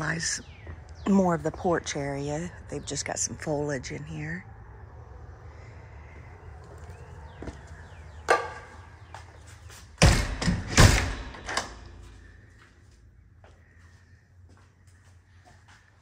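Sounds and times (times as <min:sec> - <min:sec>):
door thudding and rattling: 0:10.0 - 0:11.9.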